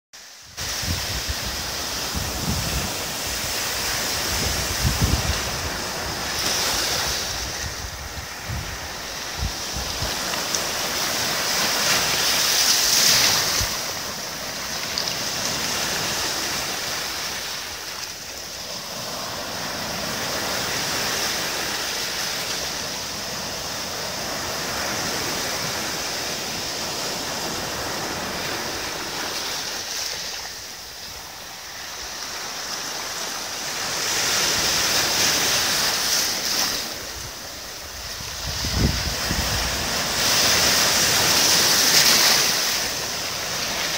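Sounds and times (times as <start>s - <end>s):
sea waves breaking on sand: 0.2s - 43.9s.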